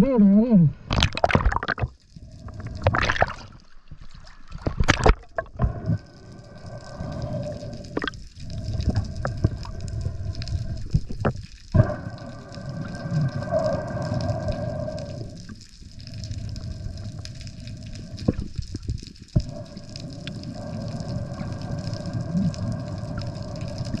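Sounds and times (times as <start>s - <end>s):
underwater clicks: 0.9s - 24.0s
water splashing: 0.9s - 24.0s.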